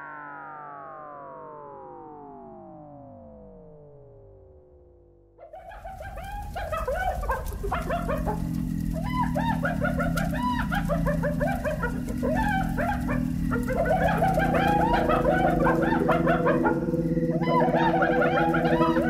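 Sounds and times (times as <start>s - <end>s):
many small birds chirping: 5.5s - 19.0s.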